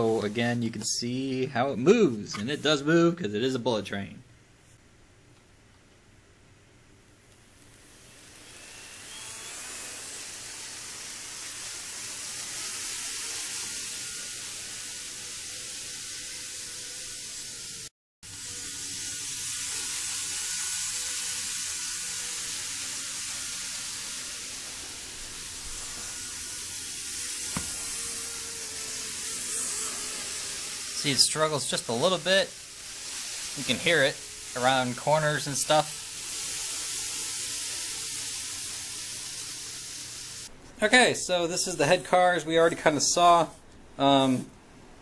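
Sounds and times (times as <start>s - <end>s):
model train whirring on track: 7.6s - 40.5s.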